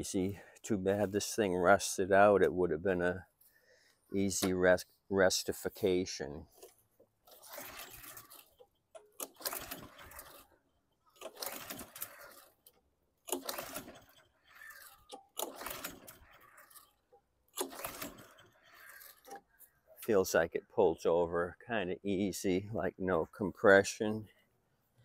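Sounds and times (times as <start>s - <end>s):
recoil starter rope pulled: 4.2s - 20.4s
engine turning over: 13.2s - 16.8s, 17.5s - 18.8s.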